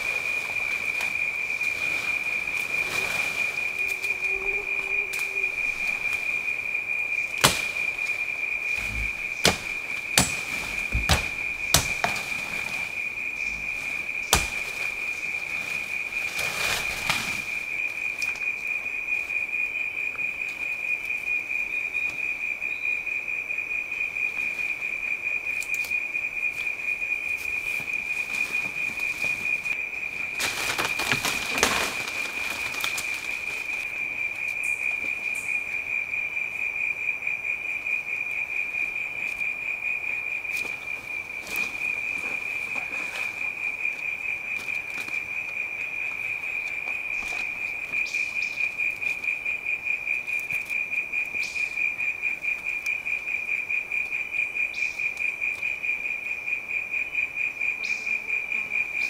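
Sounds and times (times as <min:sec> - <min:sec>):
rustling brush: 0:00.0 - 0:06.5, 0:08.7 - 0:17.7, 0:27.7 - 0:33.8
high insect drone: 0:00.0 - 0:59.0.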